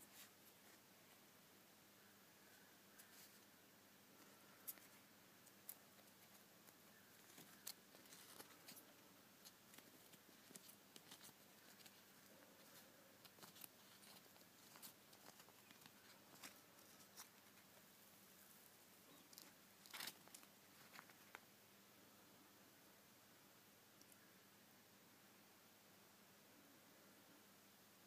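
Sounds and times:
paper liner crackling: 5.5 - 17.7, 19.1 - 21.4.

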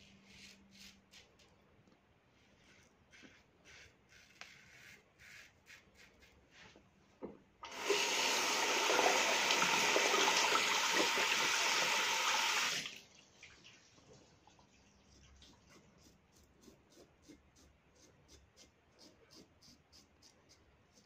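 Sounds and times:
tap running into basin: 7.6 - 12.9.

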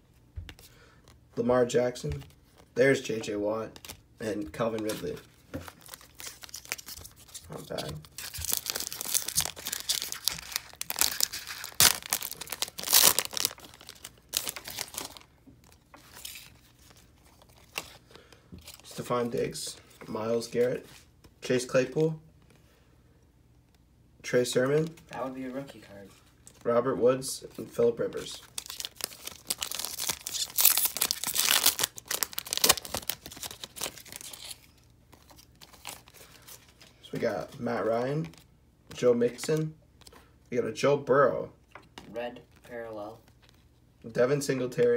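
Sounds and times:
foil wrapper crinkling: 5.7 - 18.9, 28.4 - 36.8.

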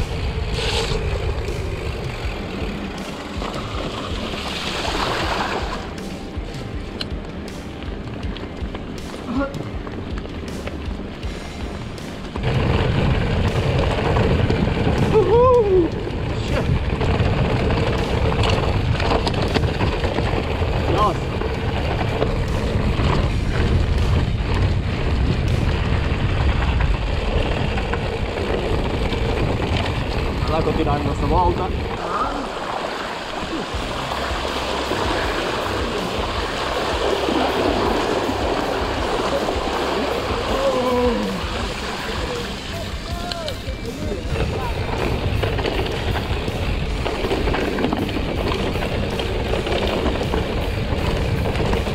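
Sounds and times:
bike tyres on dirt trail: 0.0 - 51.9
low rumble: 0.0 - 51.9
wind on microphone: 12.4 - 51.9.

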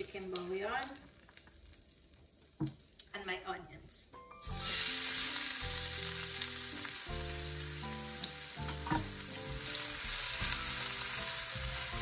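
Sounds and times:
onions sizzling in oil: 4.4 - 12.0.

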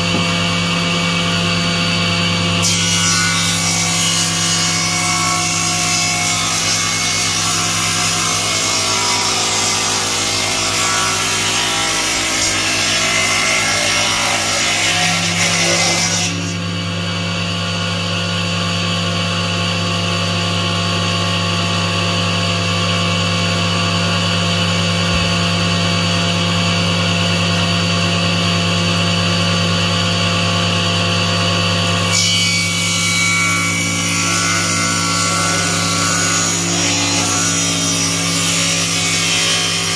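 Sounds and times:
saw blade ripping wood: 5.4 - 16.6
motor hum: 16.9 - 28.1.

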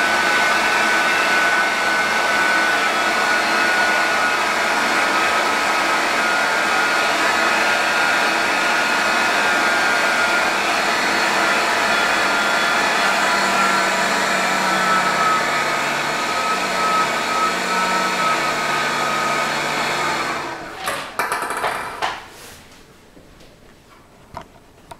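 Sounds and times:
electric fan whining: 0.0 - 22.2.

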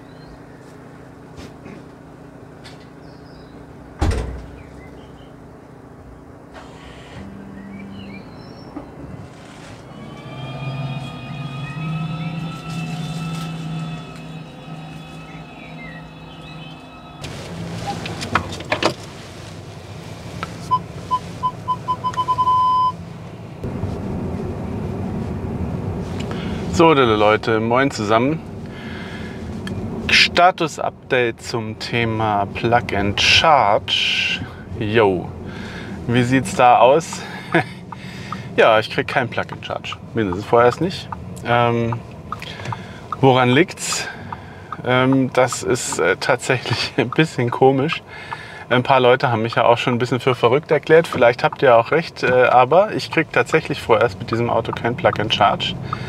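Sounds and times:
steady low hum: 0.0 - 56.0
car door shutting: 4.0 - 4.7, 17.2 - 19.2
parking sensor beeping: 9.8 - 18.0, 20.6 - 23.0, 54.3 - 56.0.

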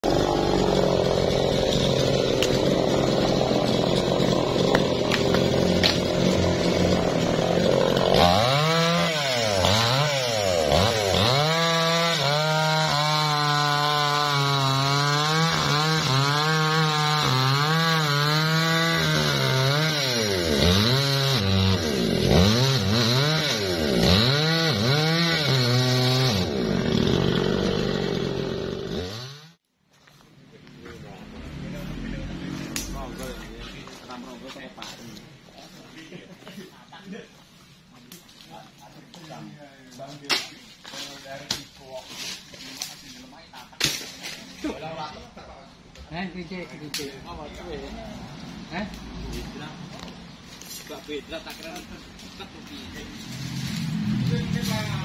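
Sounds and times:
chainsaw cutting logs: 0.0 - 29.6.

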